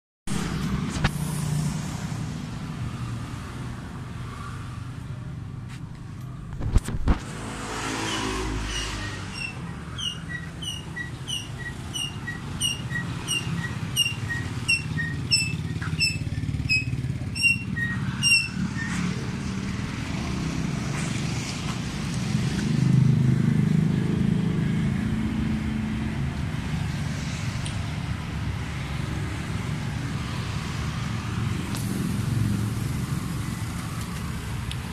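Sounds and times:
scooter engine idling: 9.1 - 18.8.

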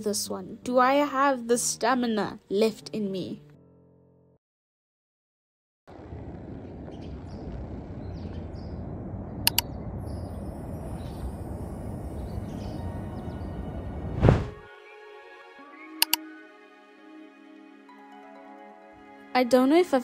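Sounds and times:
sharp clicks: 9.5 - 9.7.

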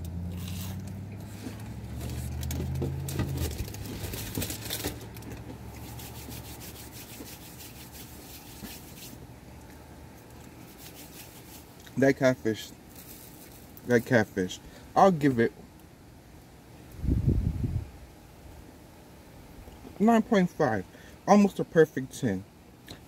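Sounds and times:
crunchy food being chewed: 0.0 - 6.0.

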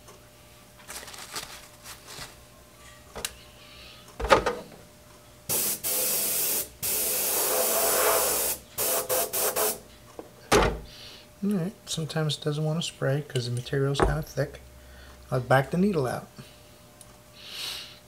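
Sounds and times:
airbrush hissing: 5.5 - 9.8.

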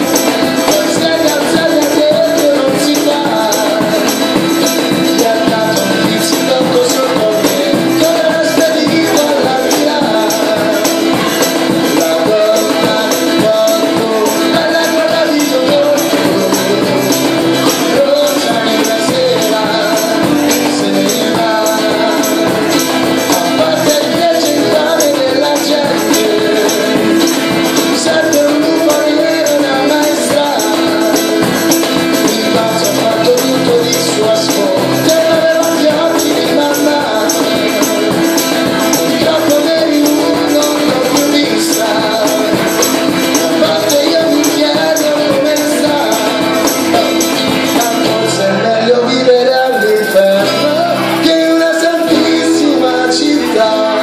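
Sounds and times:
tambourine: 0.0 - 48.4, 49.5 - 54.0
cajon beat: 0.0 - 54.0
strummed acoustic guitar: 0.0 - 54.0.

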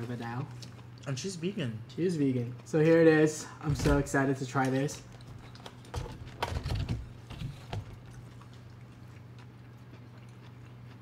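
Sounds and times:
person chewing: 0.0 - 1.3, 7.0 - 11.0
steady low hum: 0.0 - 11.0.

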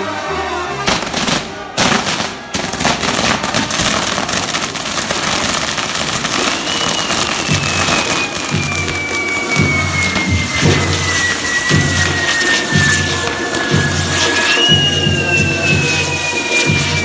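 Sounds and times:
brass band music: 0.0 - 5.4, 7.5 - 17.0
firecracker cracks and bangs: 0.8 - 17.0
firework whistle falling in pitch: 6.1 - 17.0.

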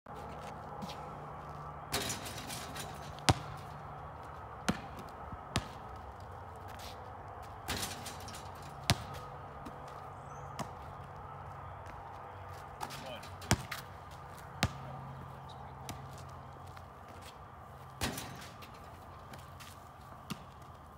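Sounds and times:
basketball bouncing on asphalt: 1.9 - 8.0, 8.6 - 12.2, 12.8 - 17.3, 19.3 - 20.8.

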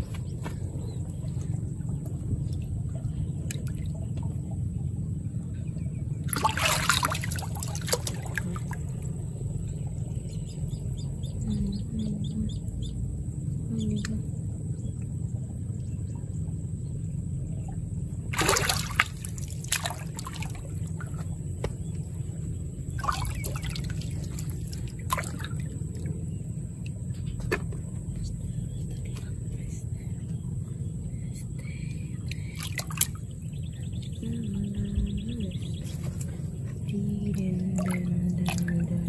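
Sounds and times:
steady low rumble: 0.0 - 39.0
shallow water splashing: 6.2 - 12.0, 18.2 - 27.7, 32.3 - 34.1, 34.7 - 39.0.

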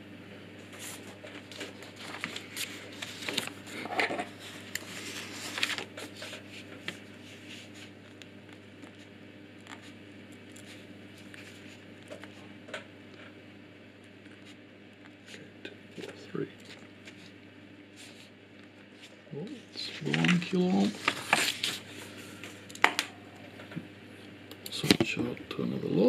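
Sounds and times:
steady low hum: 0.0 - 26.0
paper rustling: 0.7 - 12.5, 16.0 - 17.4, 18.0 - 19.1, 19.7 - 22.6.

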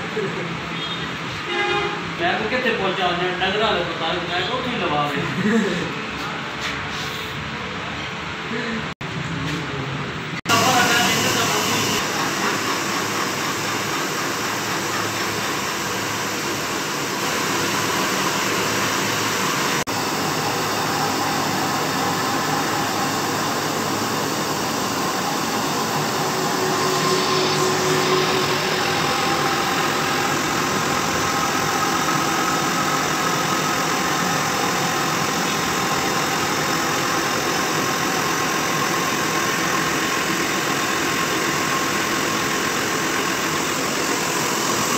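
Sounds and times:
lathe grinding whir and hiss: 10.5 - 44.9.

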